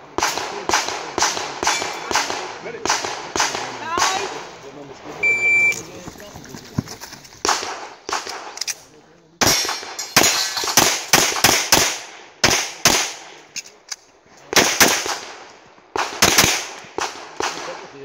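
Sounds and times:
pistol shots in quick pairs: 0.0s - 4.5s, 7.4s - 8.6s, 9.4s - 13.4s, 14.5s - 17.9s.

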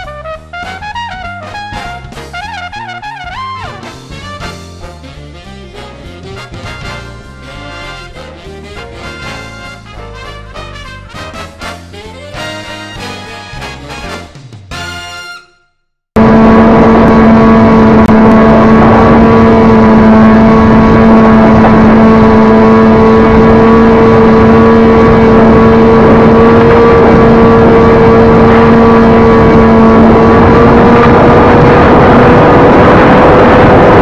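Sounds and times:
electric motor and propeller drone: 16.2s - 34.0s
wind rush on microphone: 16.2s - 34.0s.

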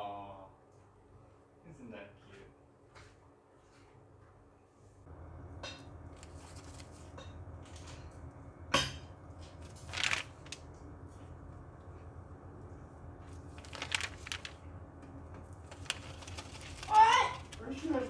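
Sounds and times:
steady low hum: 0.0s - 18.0s
rabbit nibbling newspaper: 6.0s - 8.0s, 9.4s - 11.5s, 13.2s - 14.8s, 15.4s - 18.0s.

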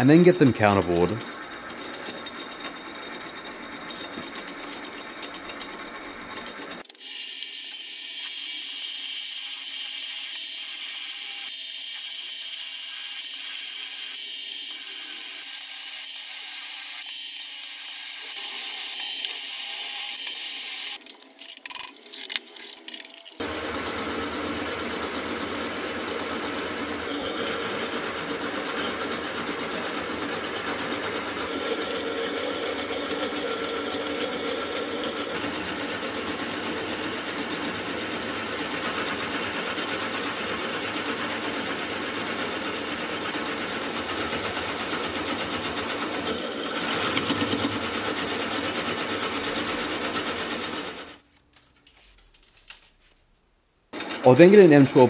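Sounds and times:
milling machine cutting steel: 22.7s - 51.2s.

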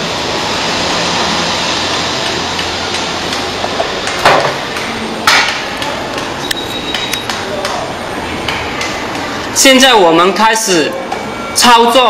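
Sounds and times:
steady background noise: 0.0s - 12.0s
sharp knocks: 2.9s - 6.3s.

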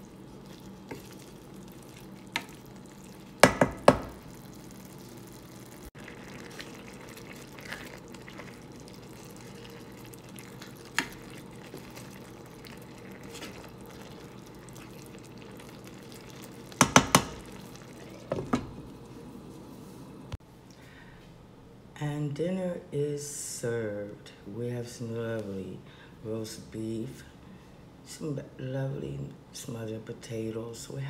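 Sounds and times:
wooden spoon scraping a pan: 0.0s - 3.2s, 6.3s - 14.9s
spinach simmering and bubbling: 0.0s - 20.4s
spoon knocking against pan: 3.4s - 4.2s, 16.8s - 17.4s.

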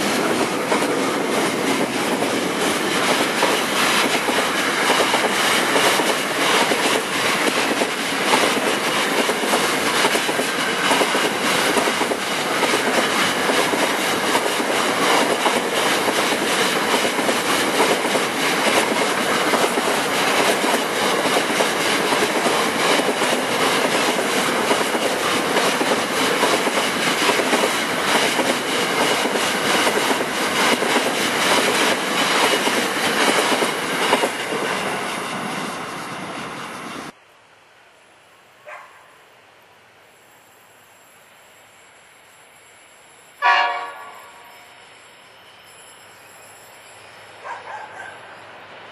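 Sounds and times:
train wheels clicking over rails: 0.0s - 37.2s.

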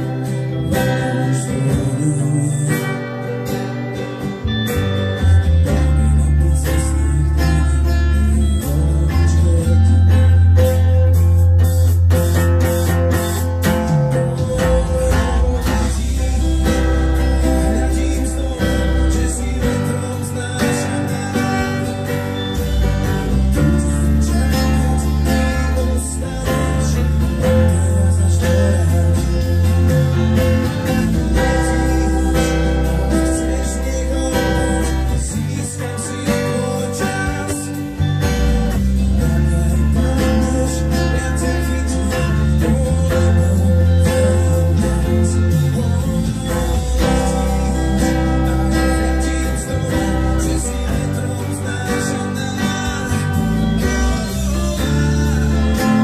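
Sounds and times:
acoustic guitar strumming: 0.0s - 56.0s
deep bass notes: 0.0s - 56.0s.

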